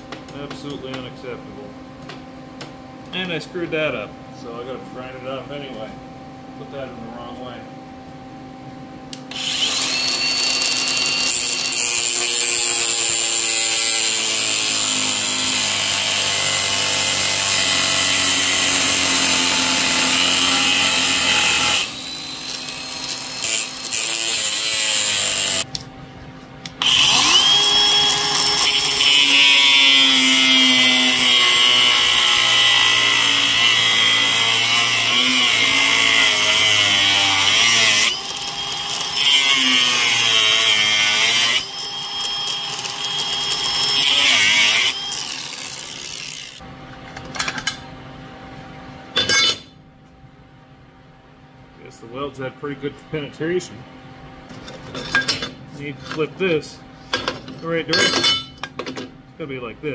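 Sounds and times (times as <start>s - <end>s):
angle grinder grinding steel: 9.3s - 25.7s, 26.8s - 46.6s.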